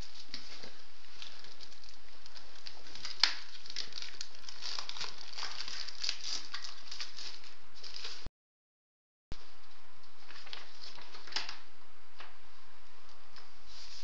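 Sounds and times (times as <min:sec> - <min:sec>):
plastic film crinkling: 0:00.0 - 0:08.3, 0:10.2 - 0:11.7.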